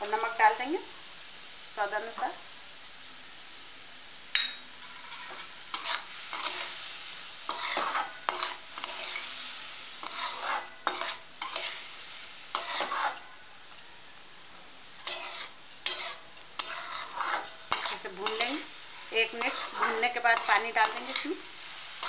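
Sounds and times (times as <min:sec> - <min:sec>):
soft frying sizzle: 0:00.0 - 0:22.0
spatula clanging on pan: 0:04.4 - 0:06.7, 0:07.5 - 0:09.4, 0:10.0 - 0:11.8, 0:12.5 - 0:13.8, 0:15.0 - 0:21.5
metal spatula scraping a pan: 0:04.8 - 0:13.4, 0:15.0 - 0:22.0.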